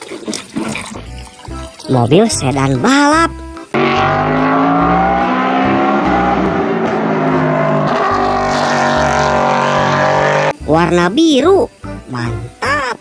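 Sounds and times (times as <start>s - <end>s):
race car engine high revs: 3.8s - 10.6s.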